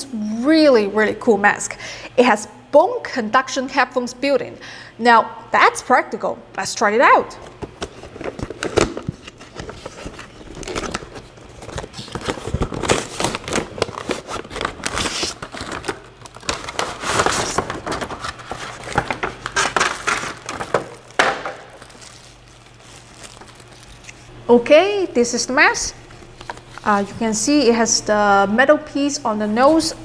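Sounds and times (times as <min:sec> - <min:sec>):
cardboard box rustling: 0:07.7 - 0:24.3.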